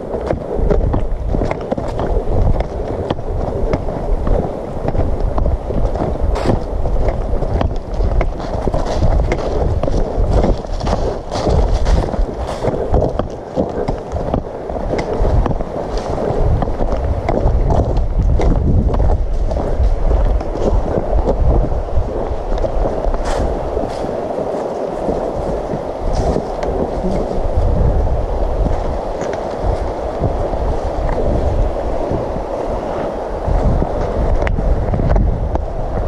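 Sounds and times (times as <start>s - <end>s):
footsteps on gravel: 0.0s - 27.8s
wind rumble on microphone: 0.0s - 36.0s.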